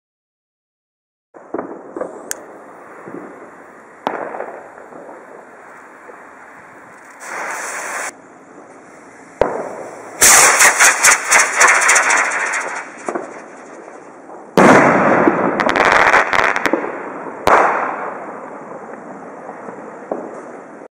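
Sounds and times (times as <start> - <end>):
rocket motor rushing crackling burn: 6.9 - 8.2, 9.6 - 14.1
jet lighter hissing: 7.0 - 8.1.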